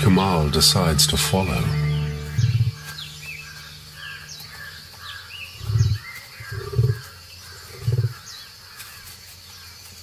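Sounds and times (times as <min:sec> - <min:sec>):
loud low booms: 0:00.0 - 0:04.4
birds chirping: 0:00.0 - 0:10.0.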